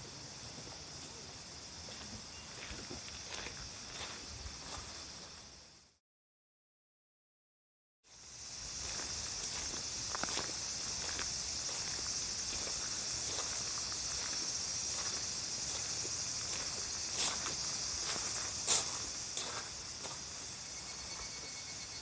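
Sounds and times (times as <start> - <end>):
insects chorus: 0.0 - 6.0, 8.0 - 22.0
light footsteps: 1.8 - 5.4, 8.7 - 20.6.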